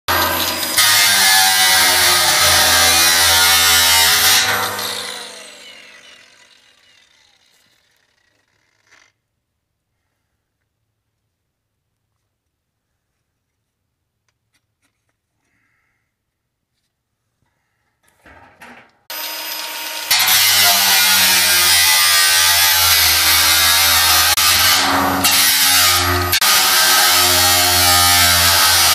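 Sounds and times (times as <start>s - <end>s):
angle grinder cutting metal: 0.1s - 9.1s, 19.1s - 28.9s.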